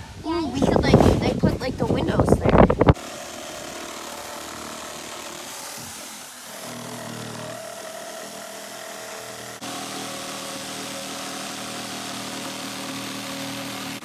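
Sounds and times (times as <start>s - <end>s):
jigsaw cutting board: 2.8s - 14.0s.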